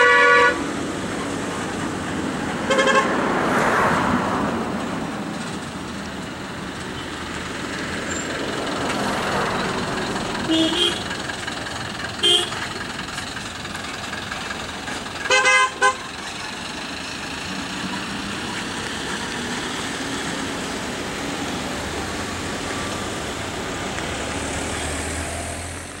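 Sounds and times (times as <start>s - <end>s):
vehicle horn honking: 0.0s - 0.6s, 2.7s - 3.2s, 10.5s - 11.2s, 12.2s - 12.7s, 15.3s - 16.1s
low engine rumble: 0.0s - 26.0s
vehicles running on a road: 0.0s - 26.0s.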